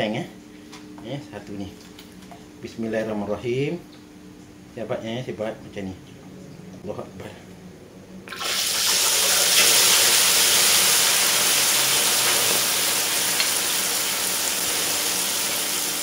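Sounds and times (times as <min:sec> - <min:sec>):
batter sizzling in hot oil: 0:08.4 - 0:16.0.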